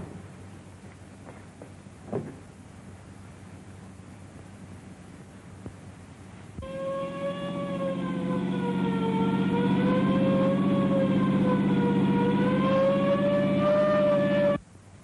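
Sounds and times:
low steady drone: 1.9 - 15.0
ambulance siren wailing: 6.6 - 14.6.

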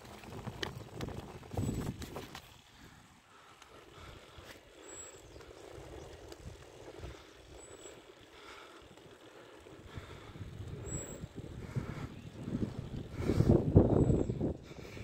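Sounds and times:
wind rumble on microphone: 0.0 - 2.4, 9.8 - 15.0
bicycle tyres rolling on asphalt: 0.0 - 15.0.

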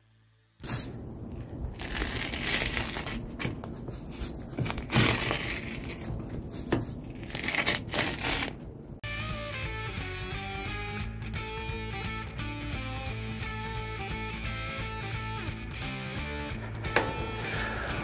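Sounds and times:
pizza cutter crunching crust: 1.4 - 8.6.

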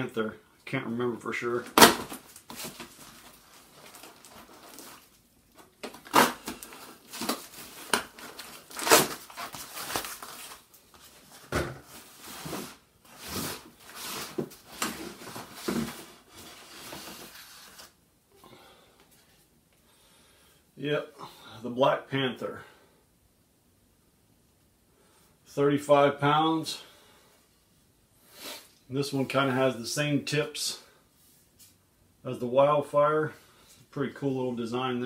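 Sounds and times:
plastic wrap crinkling and tearing: 1.7 - 11.4.

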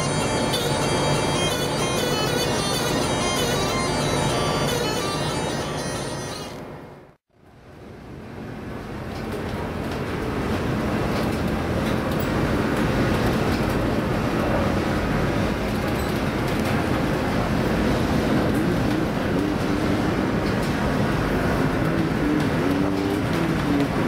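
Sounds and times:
roar of wind and heavy sea: 7.6 - 24.0.

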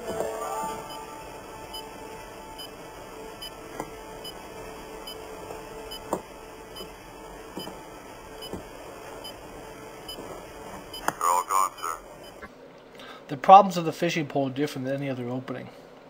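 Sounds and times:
electronic hum with two tones: 0.0 - 12.6.

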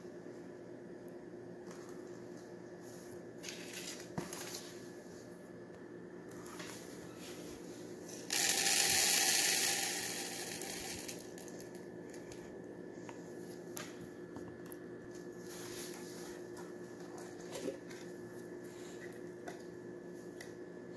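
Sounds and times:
beads pouring into plastic tub: 8.2 - 11.8.

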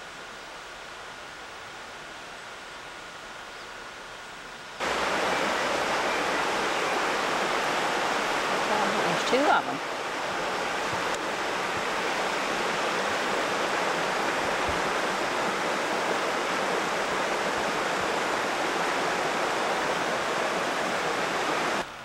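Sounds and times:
creek rushing over rocks: 4.8 - 22.0.

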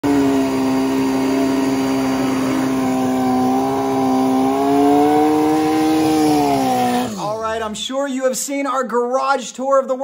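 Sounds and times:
motorcycle engine at high revs: 0.0 - 7.8.

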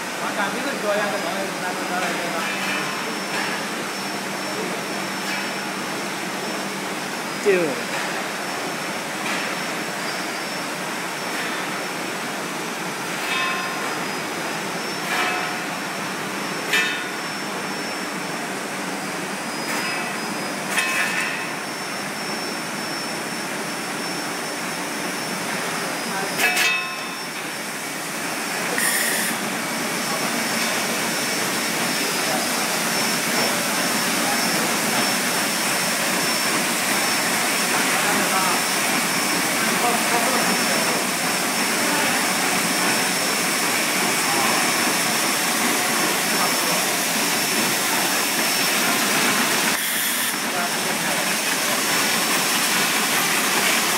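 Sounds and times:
packing machine whirring: 28.6 - 53.9.

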